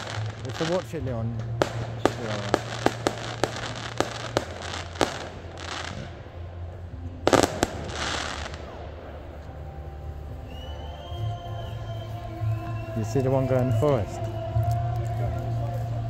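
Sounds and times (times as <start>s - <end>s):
fireworks bursting bangs: 0.0s - 10.7s
crackling hiss: 0.0s - 16.0s.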